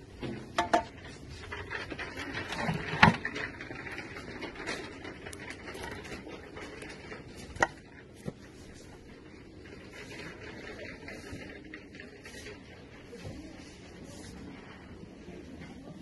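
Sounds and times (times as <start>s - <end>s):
faint rustling: 0.0s - 16.0s
shop background noise: 0.0s - 16.0s
wooden boards knocking together: 0.2s - 1.0s.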